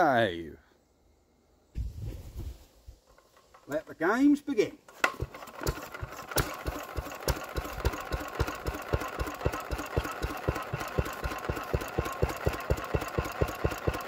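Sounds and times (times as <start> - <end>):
single-cylinder engine running: 4.9 - 14.0.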